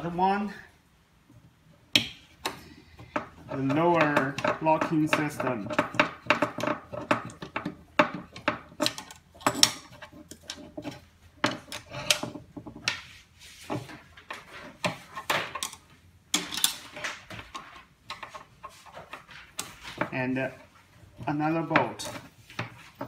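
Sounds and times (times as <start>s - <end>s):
screwdriver clicking on metal frame: 8.3s - 10.6s.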